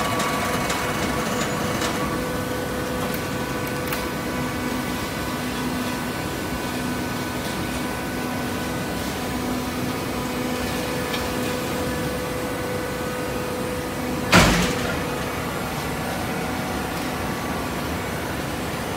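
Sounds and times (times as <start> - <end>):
hydraulic press humming: 0.0 - 18.6
loud bang: 14.3 - 15.3.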